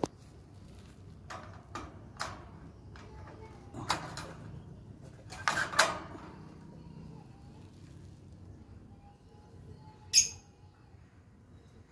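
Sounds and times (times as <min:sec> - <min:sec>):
wire birdcage rattling: 0:05.2 - 0:06.5.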